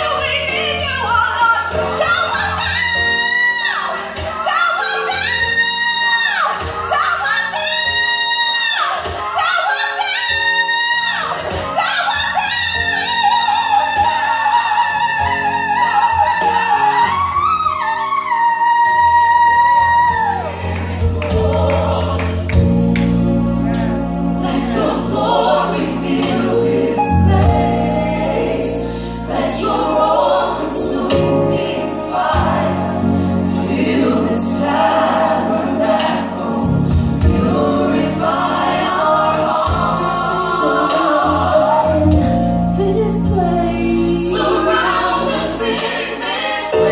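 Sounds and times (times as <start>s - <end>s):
gospel choir and band: 0.0s - 46.9s.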